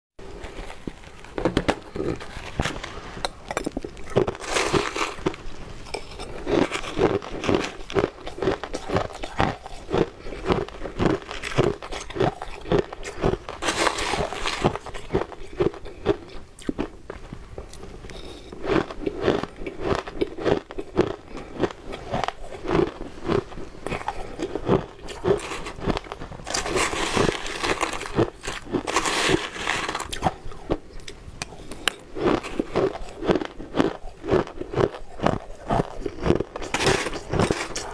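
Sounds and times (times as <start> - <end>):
chewing shaved ice: 0.2 - 37.9
metal spoon scraping ice: 2.0 - 9.9, 11.4 - 15.6, 25.1 - 30.4, 35.8 - 37.9.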